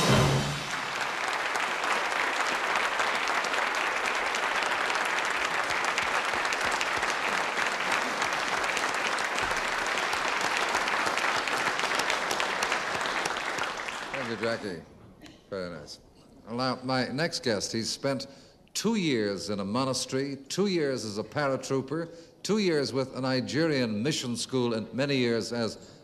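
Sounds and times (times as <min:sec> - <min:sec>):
audience applauding: 0:00.0 - 0:14.8.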